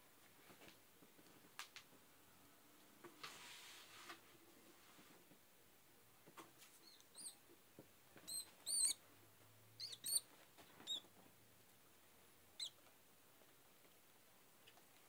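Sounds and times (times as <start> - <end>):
rodent squeaking: 6.8 - 7.4, 8.2 - 9.0, 9.8 - 11.1, 12.6 - 12.8.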